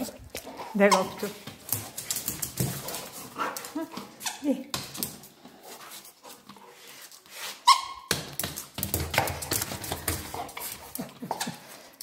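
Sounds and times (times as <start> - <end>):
dog scrabbling on tiled floor: 0.0 - 7.2, 8.2 - 11.6
scratching and rustling: 0.0 - 7.7.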